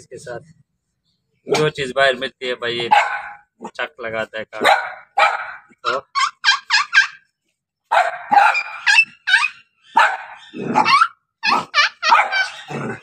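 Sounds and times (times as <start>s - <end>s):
puppy yapping: 4.6s - 7.3s, 7.9s - 13.0s.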